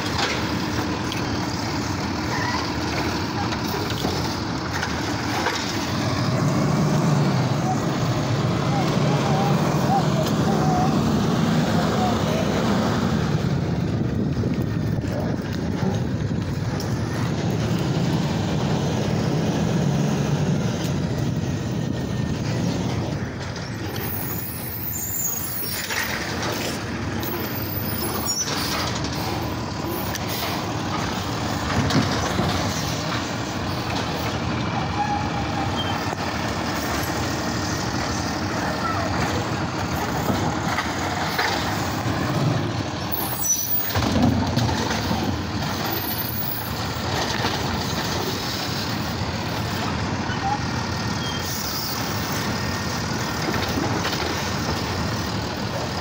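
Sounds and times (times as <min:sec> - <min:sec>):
garbage truck running: 0:00.0 - 0:56.0.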